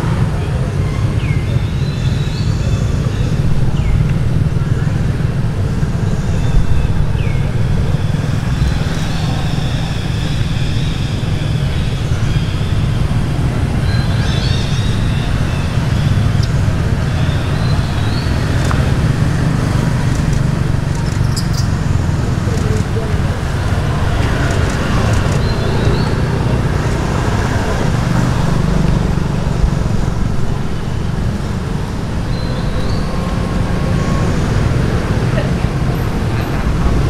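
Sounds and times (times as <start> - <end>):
low outdoor rumble: 0.0 - 37.0
sharp ticks: 20.0 - 21.7.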